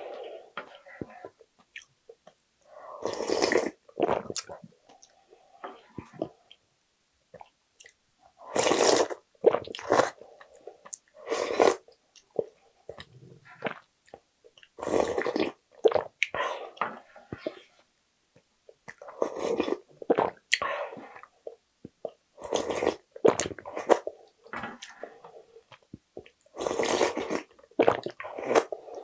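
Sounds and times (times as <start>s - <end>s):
loud slurping of broth: 3.0s - 3.8s, 8.5s - 9.2s, 11.2s - 11.8s.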